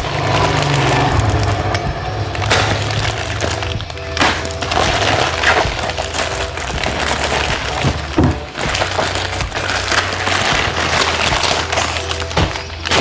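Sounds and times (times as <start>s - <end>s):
plastic mailer crinkling and tearing: 0.0s - 13.0s.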